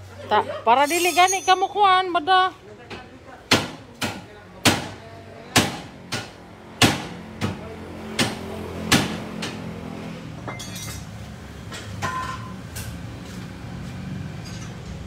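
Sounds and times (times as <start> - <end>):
metallic clinks of tools: 0.8 - 1.8
hammer striking metal: 3.5 - 7.6.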